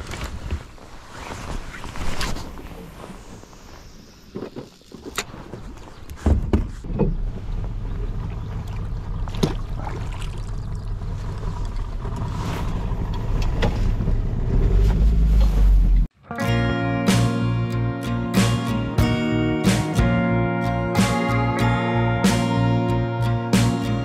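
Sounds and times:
boat motor humming: 6.8s - 16.1s.

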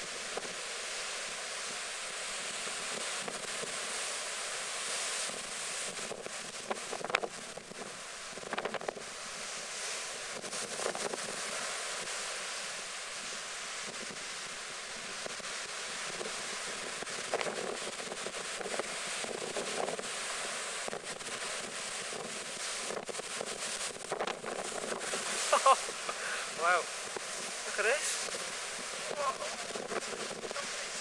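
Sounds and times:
heavy surf breaking: 0.1s - 31.0s
wind buffeting microphone: 16.0s - 31.0s.

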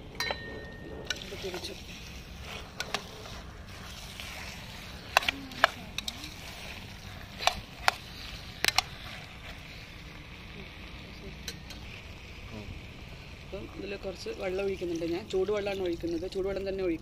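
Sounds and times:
metal spoon clinking against pot: 0.2s - 1.7s.

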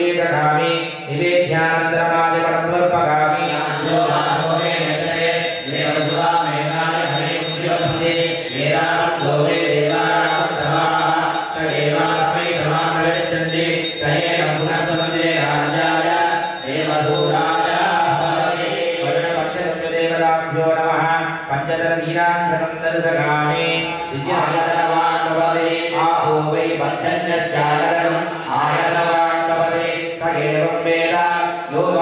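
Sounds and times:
people chanting: 2.7s - 20.8s, 22.9s - 32.0s
handbell rung fast: 3.4s - 19.0s.

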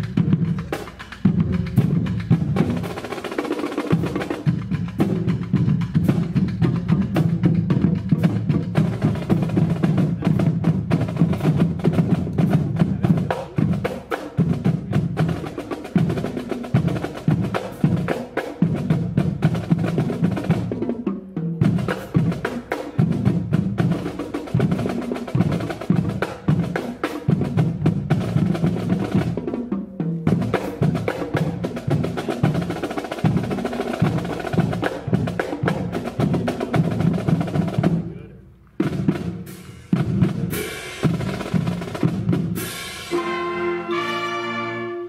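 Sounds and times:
drums and congas: 0.0s - 45.0s
marching band playing: 0.0s - 45.0s
horn chords: 42.6s - 45.0s.

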